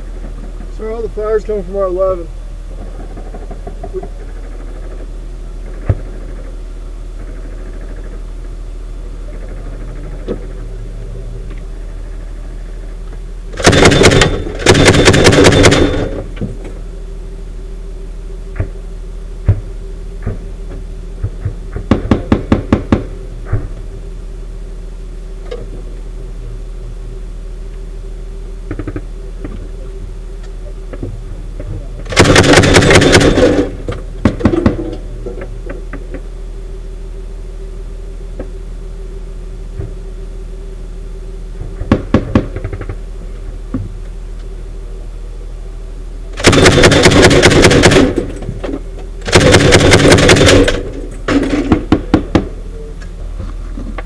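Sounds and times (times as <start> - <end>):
steady hum: 0.0 - 54.0
grenade launcher firing bursts: 13.6 - 16.3, 32.1 - 34.8, 46.4 - 48.4, 49.2 - 52.0.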